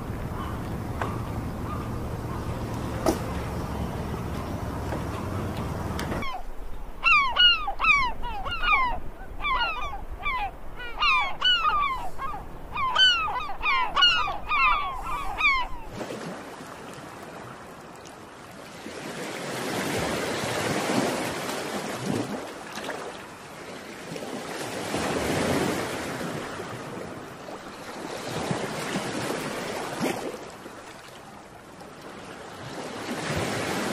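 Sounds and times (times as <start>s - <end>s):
waves washing on shore: 0.0s - 6.3s, 14.8s - 33.9s.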